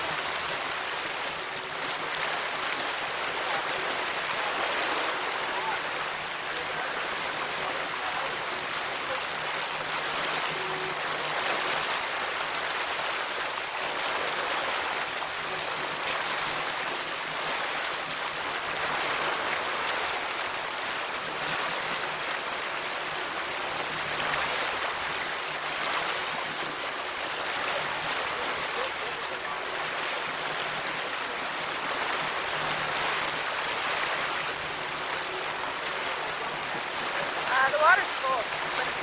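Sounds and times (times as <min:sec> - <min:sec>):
water rushing along boat hull: 0:00.0 - 0:39.0.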